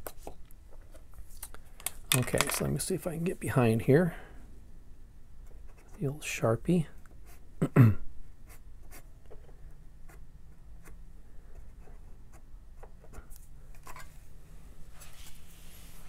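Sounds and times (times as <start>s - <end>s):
man murmuring: 7.6s - 8.0s.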